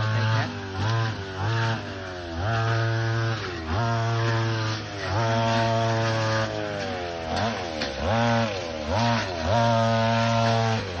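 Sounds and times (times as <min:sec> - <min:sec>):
small petrol engine revving: 0:00.0 - 0:11.0.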